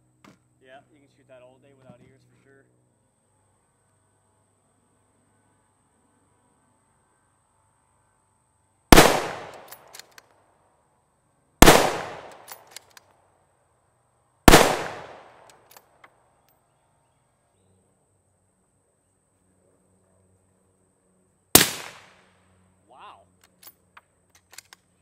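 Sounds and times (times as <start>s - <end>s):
rifle shots: 8.9s - 10.0s, 11.6s - 12.9s, 14.5s - 15.6s, 21.5s - 22.2s.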